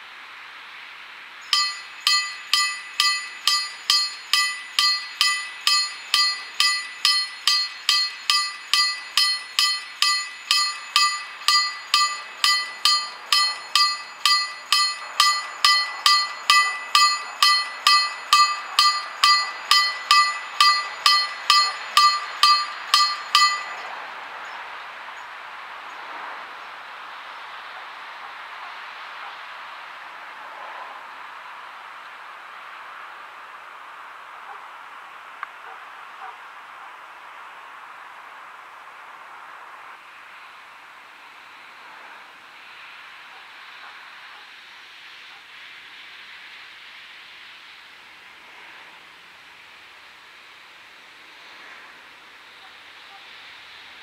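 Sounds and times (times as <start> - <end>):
level crossing warning bell: 1.5 - 24.0.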